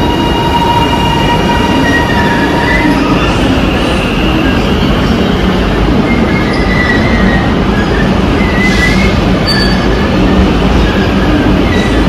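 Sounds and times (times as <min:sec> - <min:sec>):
train wheels rumbling on rail: 0:00.0 - 0:12.0
high-pitched wheel squeals: 0:06.0 - 0:10.1.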